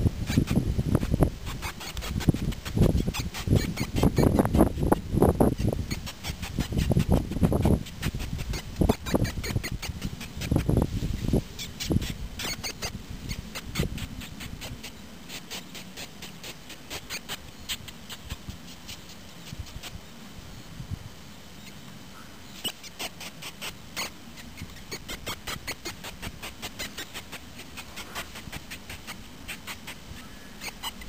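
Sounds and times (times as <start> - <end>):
shrew squeaking: 0.2 - 20.0, 21.6 - 31.0.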